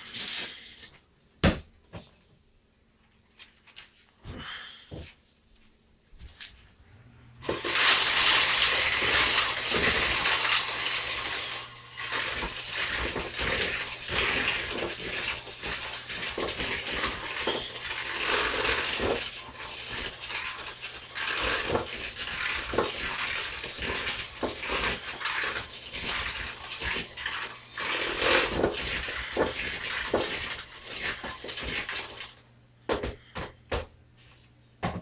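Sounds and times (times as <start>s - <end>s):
electric hand mixer churning dough: 7.4s - 33.1s.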